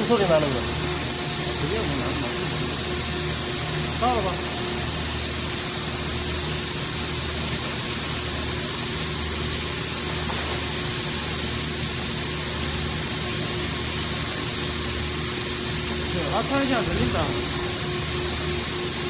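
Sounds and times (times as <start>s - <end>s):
machinery hiss: 0.0s - 19.0s
low hum: 16.8s - 19.0s.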